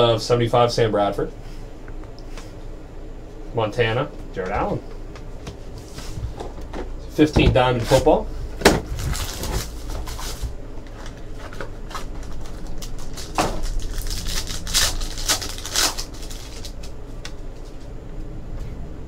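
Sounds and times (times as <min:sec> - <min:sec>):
wrapper crinkling: 0:08.9 - 0:17.8
cards rustling: 0:09.0 - 0:17.9.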